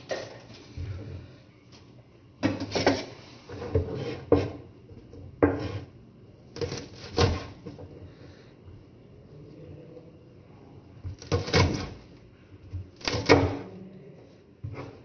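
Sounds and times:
knife chopping on plastic board: 2.4 - 5.9, 6.6 - 7.8, 11.0 - 12.0, 13.0 - 13.7, 14.6 - 15.0.

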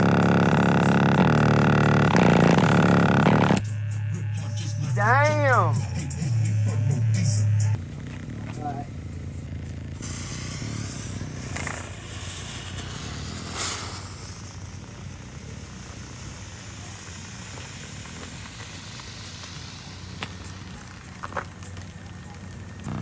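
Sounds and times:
distorted bass-heavy music: 0.0 - 23.0
smoke bomb hissing: 9.8 - 23.0.

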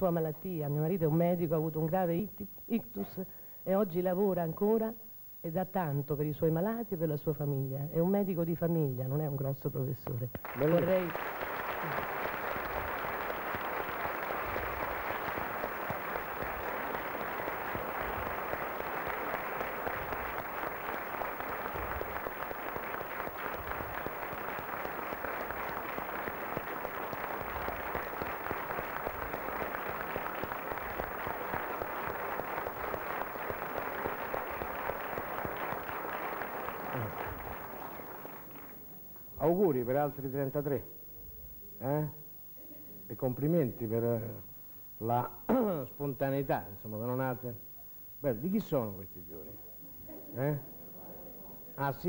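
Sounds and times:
audience applauding: 10.4 - 39.0.

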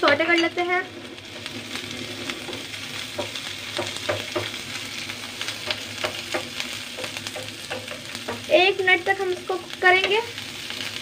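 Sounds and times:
vegetables sizzling in hot oil: 0.0 - 11.0.

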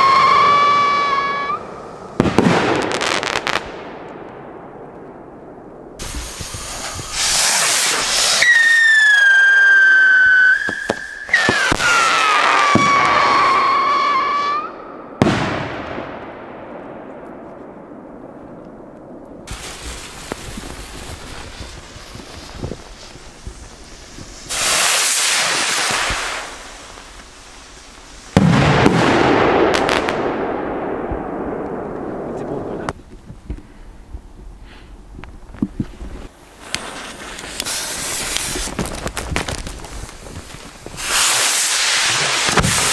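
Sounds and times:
firework whistle falling in pitch: 0.0 - 1.7, 8.3 - 14.8
firework cracks: 0.0 - 33.0, 35.2 - 42.9
loud firework bang: 2.2 - 3.2, 15.2 - 16.3, 28.3 - 32.9, 41.0 - 42.9
rocket launch hiss: 6.0 - 14.7, 19.5 - 30.4, 36.4 - 42.9
rolling echo: 28.4 - 32.9.

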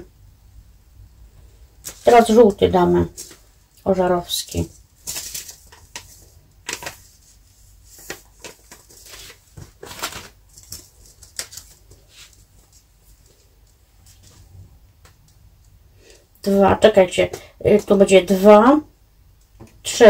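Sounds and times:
hands rustling seed containers: 1.8 - 14.5.

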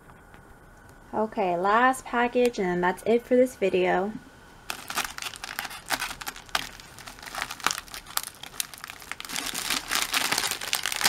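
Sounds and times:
plastic mailer crinkling: 4.7 - 11.0.

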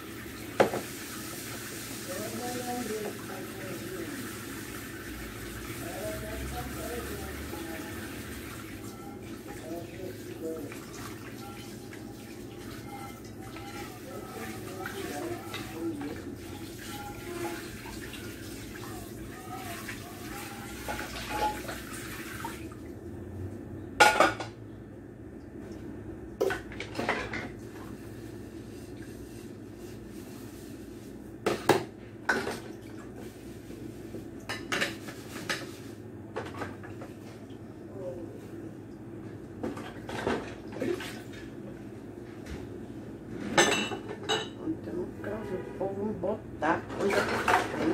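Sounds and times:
tap water running: 0.0 - 23.0
dishes and cutlery clinking: 20.8 - 21.8, 43.4 - 44.6.

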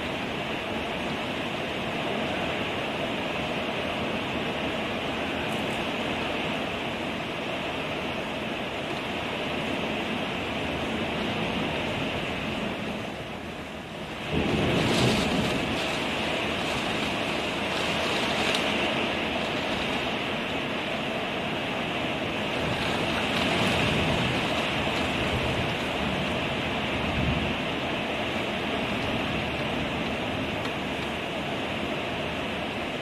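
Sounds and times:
torrential rain hissing: 0.0 - 33.0
thunderclap: 14.2 - 18.9.

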